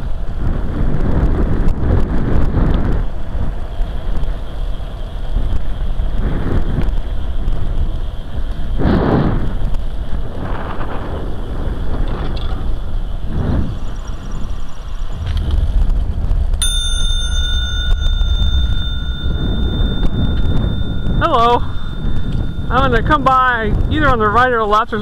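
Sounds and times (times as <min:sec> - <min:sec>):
tricycle rolling on pavement: 0:00.0 - 0:25.0
wind buffeting microphone: 0:00.0 - 0:25.0.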